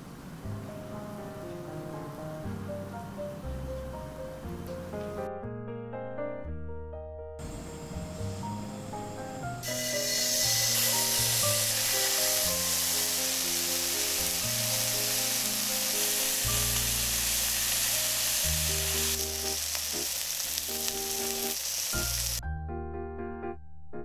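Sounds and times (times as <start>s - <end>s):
light background tune: 0.5s - 20.1s
bacon sizzling in a pan: 9.6s - 22.4s.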